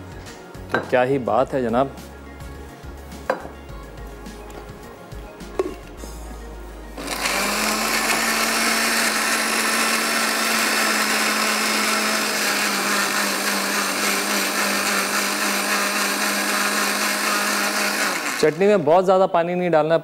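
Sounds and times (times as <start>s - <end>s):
blender running: 7.0s - 18.9s.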